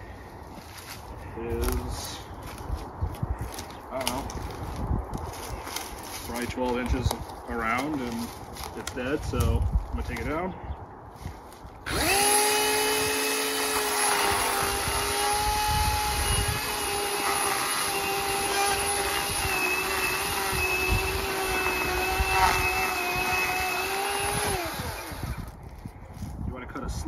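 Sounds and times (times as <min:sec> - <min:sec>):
cordless chainsaw cutting wood: 0:11.9 - 0:25.6.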